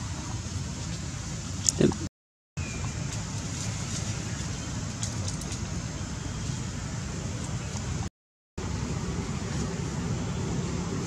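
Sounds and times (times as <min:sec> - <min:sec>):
faint ticks and rustles: 0:03.1 - 0:05.7.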